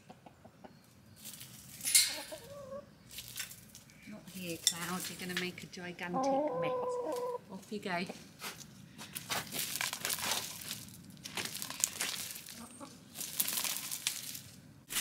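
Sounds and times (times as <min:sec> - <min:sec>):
hens scratching in dry leaves: 0:01.1 - 0:05.4, 0:06.7 - 0:15.0.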